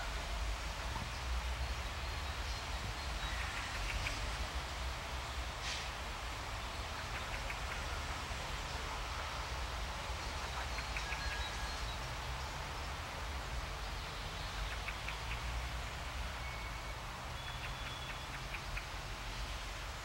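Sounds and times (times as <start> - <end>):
low rumble and hiss: 0.0 - 20.0.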